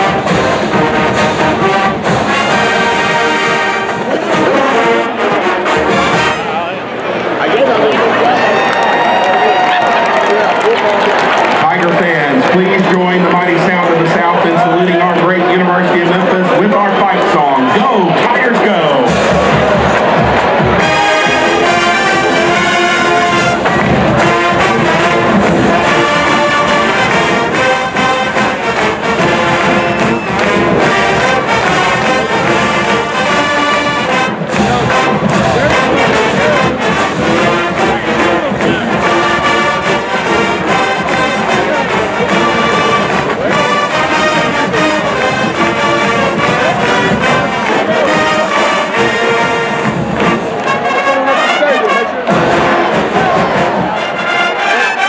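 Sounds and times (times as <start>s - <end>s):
drumline with cymbals: 0.0s - 6.6s, 18.8s - 50.8s, 52.3s - 54.8s
brass section playing: 0.0s - 6.8s, 11.0s - 55.0s.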